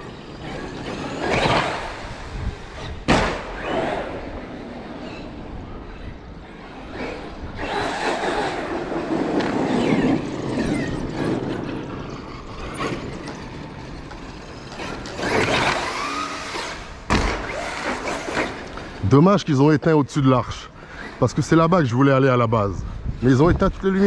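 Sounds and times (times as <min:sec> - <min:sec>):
electric motor whining: 0:00.0 - 0:19.0
tyre noise on pavement: 0:07.6 - 0:19.0.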